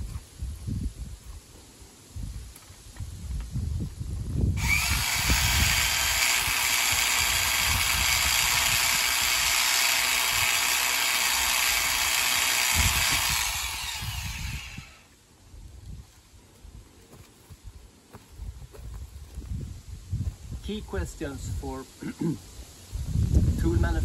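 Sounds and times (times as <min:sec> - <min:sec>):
rock drill hammering rock: 0:04.6 - 0:15.1.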